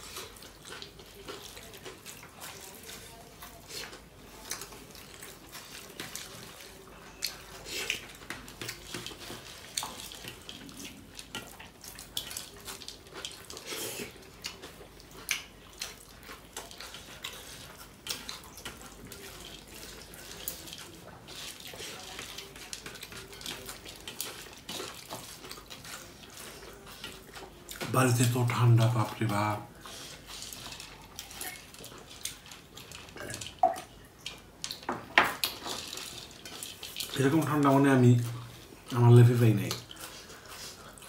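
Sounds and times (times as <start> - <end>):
fingers squishing rice and curry: 0.0 - 28.4
chewing and lip-smacking: 0.0 - 39.0, 39.6 - 41.0.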